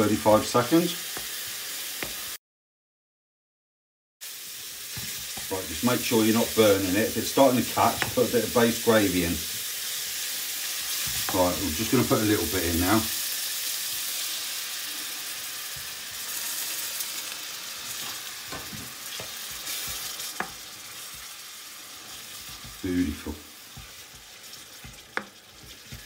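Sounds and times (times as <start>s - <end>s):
onions sizzling in a frying pan: 0.0s - 2.4s, 4.2s - 26.0s
wooden spoon knocking a pan: 4.9s - 5.5s, 7.7s - 8.3s, 11.0s - 11.5s, 18.0s - 21.4s, 22.1s - 23.0s, 23.7s - 26.0s.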